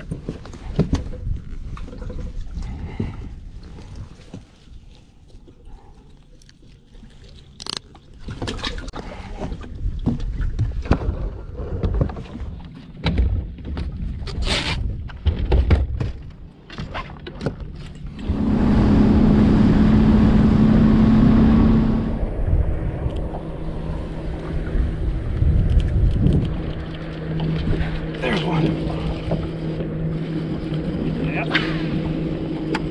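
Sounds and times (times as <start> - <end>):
motor drone: 17.9 - 32.9
wind on microphone: 18.1 - 32.9.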